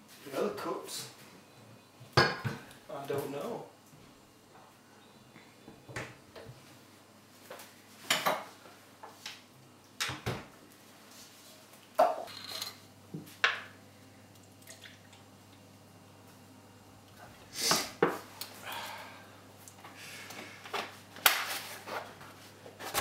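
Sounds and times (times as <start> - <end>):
milk pouring into cup: 14.3 - 15.3.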